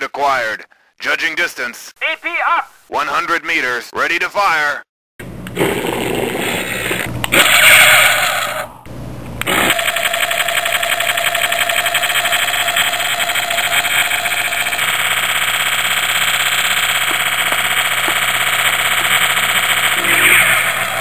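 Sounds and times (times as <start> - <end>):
fast-pulsing humming engine: 9.4 - 21.0.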